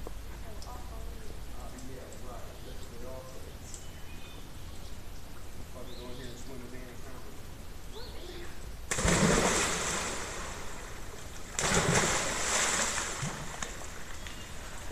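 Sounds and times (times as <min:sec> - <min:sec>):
heavy splashes into pool: 0:08.9 - 0:14.9.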